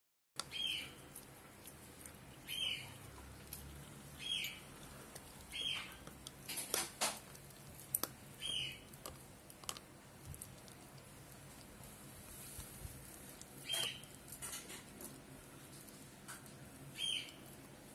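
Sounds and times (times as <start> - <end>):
chew bone cracking: 0.4 - 11.9
puppy teeth scraping on chew: 0.4 - 17.9
puppy squeaking: 5.5 - 6.1, 8.4 - 8.9, 13.6 - 14.6.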